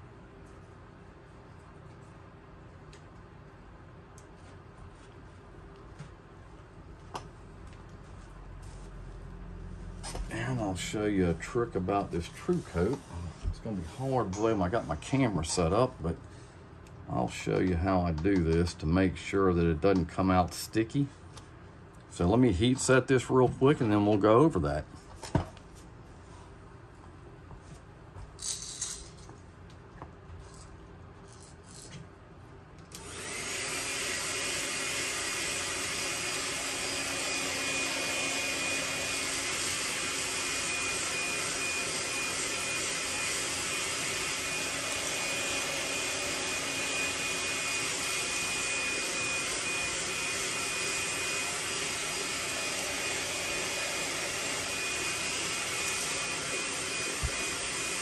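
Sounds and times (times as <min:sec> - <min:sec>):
hot-air blower whining: 0:09.8 - 0:16.5, 0:32.9 - 0:58.0.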